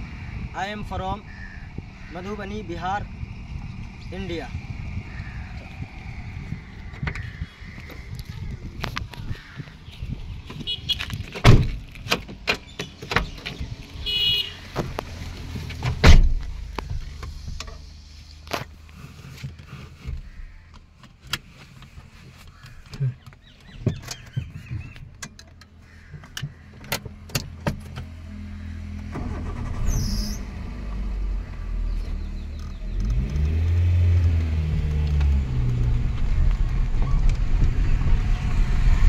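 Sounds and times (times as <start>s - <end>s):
car doors shutting: 10.6s - 17.8s
clicks and knocks inside car: 19.4s - 28.1s.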